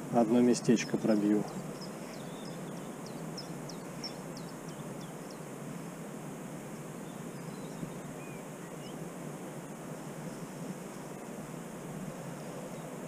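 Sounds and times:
high falling bird chirps: 0.5s - 5.5s.

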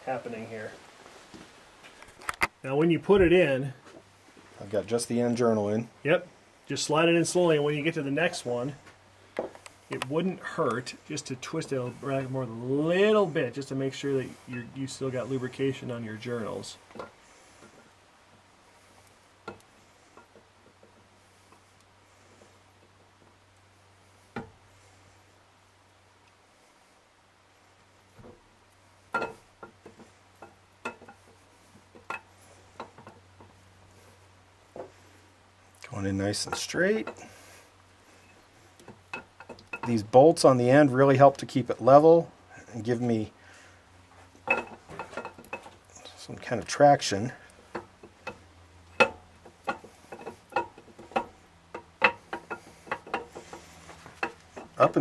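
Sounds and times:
low steady hum: 0.0s - 55.0s
metal clicks and knocks: 44.4s - 45.8s.

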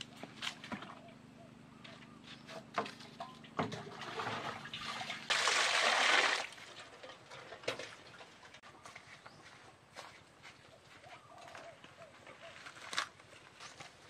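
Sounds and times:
water splashing into metal bowl: 3.7s - 6.6s.

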